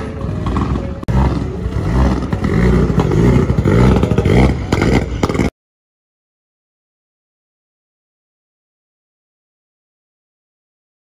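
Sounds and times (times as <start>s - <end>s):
rally car engine revving: 0.0s - 5.5s
exhaust pops and crackles: 0.2s - 5.5s.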